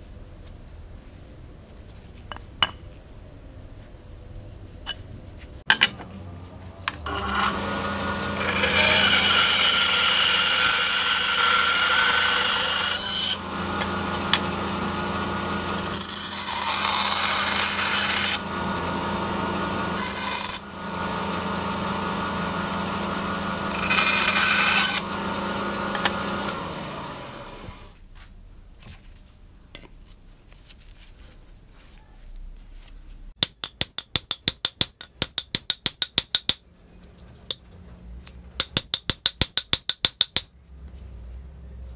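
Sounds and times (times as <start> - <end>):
power saw cutting wood: 7.0 - 27.9.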